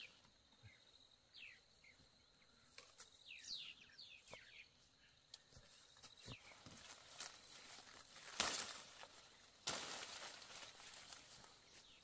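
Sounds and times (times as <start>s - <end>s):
bird chirps: 0.0s - 7.0s.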